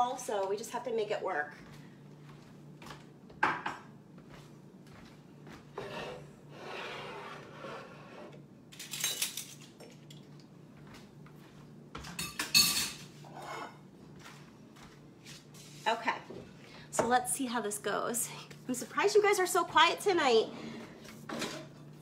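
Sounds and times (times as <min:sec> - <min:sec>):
kitchenware clattering: 0:08.8 - 0:10.2, 0:12.0 - 0:13.8
spoons clinking against dishes: 0:12.2 - 0:13.8.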